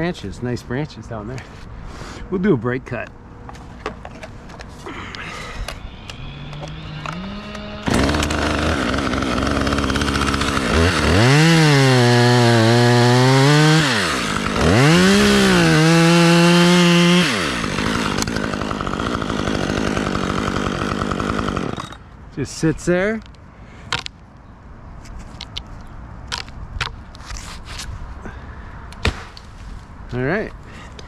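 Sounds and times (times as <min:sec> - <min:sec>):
chainsaw cutting wood: 0:05.4 - 0:22.0.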